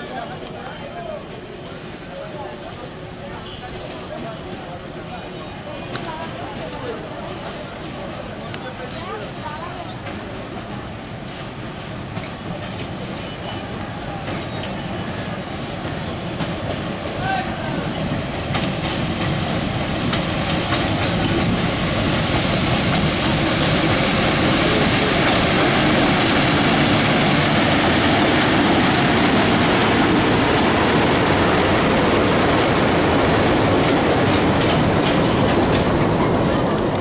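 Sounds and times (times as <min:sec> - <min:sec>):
train rolling along track: 0:00.0 - 0:37.0.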